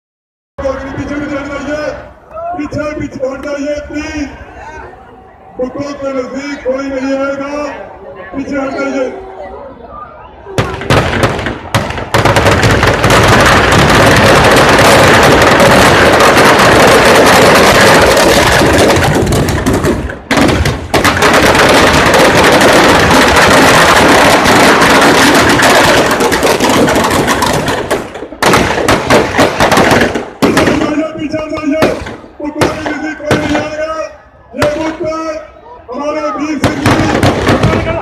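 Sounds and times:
firecrackers banging: 10.6s - 34.0s, 34.6s - 35.2s, 36.5s - 38.0s.

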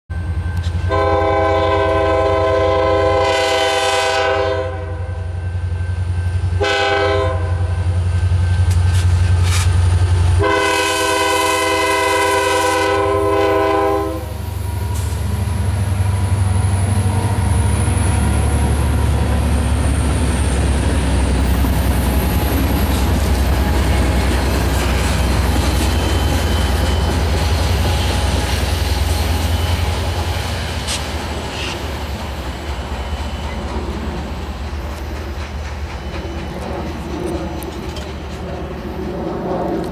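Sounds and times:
train air horn blasts: 0.6s - 5.4s, 6.5s - 8.0s, 10.4s - 15.2s, 22.2s - 32.0s
diesel engines rumbling: 6.6s - 39.9s
wheels rolling on rails: 16.0s - 39.9s.

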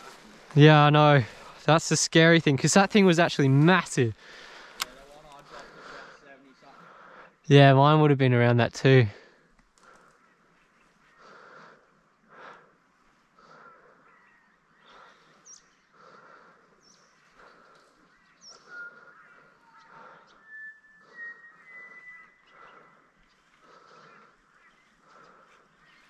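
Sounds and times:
birds chirping and whistling: 13.7s - 26.0s.

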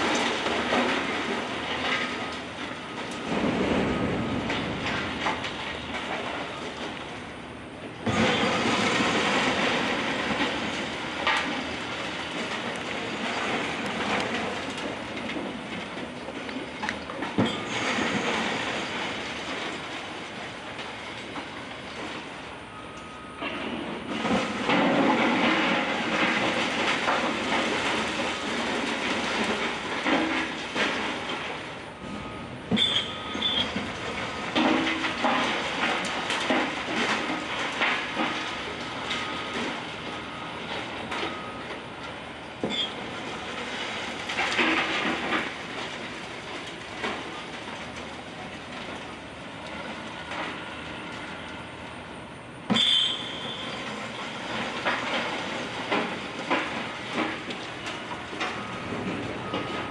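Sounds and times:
falling debris clattering: 0.0s - 7.3s, 8.0s - 22.2s, 23.5s - 50.6s, 52.7s - 59.9s
high metal squeals: 32.8s - 33.8s, 52.8s - 53.9s.

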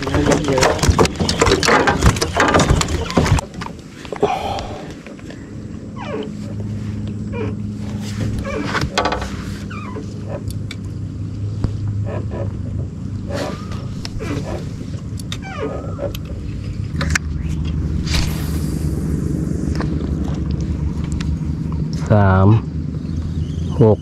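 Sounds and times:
fish knocking and clattering in net: 0.0s - 4.2s
steady low hum: 0.0s - 24.0s
short falling squeaks: 1.2s - 3.4s, 5.9s - 10.5s, 13.2s - 18.8s.

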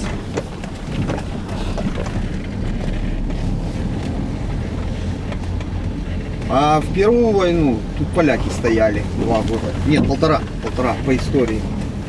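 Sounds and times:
road noise: 0.0s - 12.0s
vehicle engine hum: 0.0s - 12.0s.

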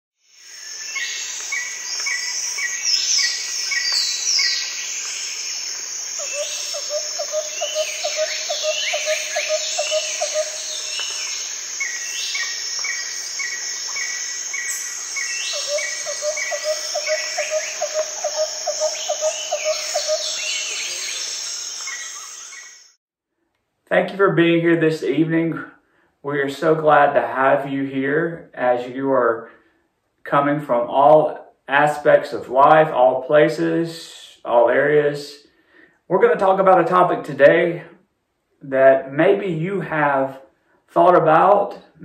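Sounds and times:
high-pitched insect drone: 0.2s - 23.0s
birds chirping and calling: 0.4s - 22.9s.

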